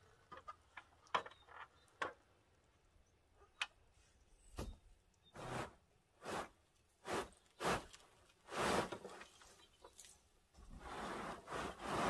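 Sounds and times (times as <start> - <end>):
rake scraping metal roof: 5.3 - 10.0, 10.6 - 12.0.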